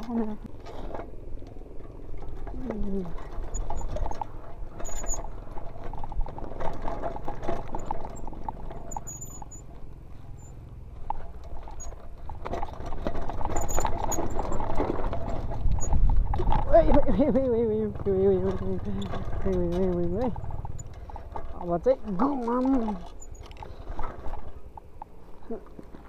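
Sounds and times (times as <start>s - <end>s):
bike rattling over bumps: 0.0s - 26.0s
bike tyres crunching over dirt: 0.0s - 26.0s
brief high squeaks: 4.8s - 5.3s, 8.9s - 9.7s, 23.1s - 23.5s.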